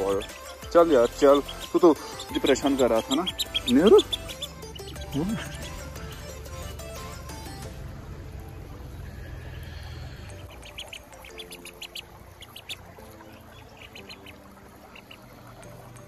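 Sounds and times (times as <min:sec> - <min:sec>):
duckling peeping: 0:00.0 - 0:07.2, 0:08.9 - 0:16.0.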